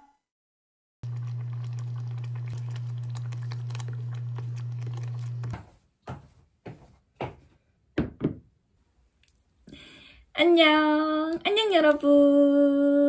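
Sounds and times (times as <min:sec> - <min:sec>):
porridge bubbling: 0:01.0 - 0:05.7.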